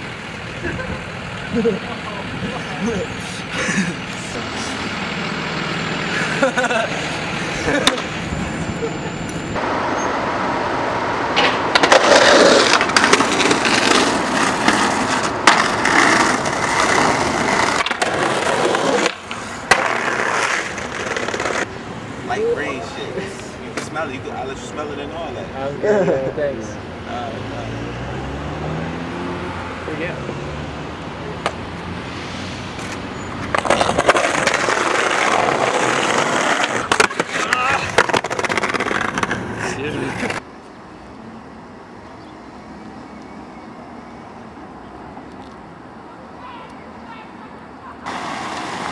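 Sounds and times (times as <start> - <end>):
skateboard wheels rolling on pavement: 0.0 - 27.4, 28.1 - 48.9
city traffic hum: 0.0 - 48.9
skateboard clacks: 7.7 - 8.1, 11.4 - 21.7, 32.8 - 40.4
skateboard grinding on concrete: 11.4 - 21.7, 32.8 - 40.4, 48.0 - 48.9.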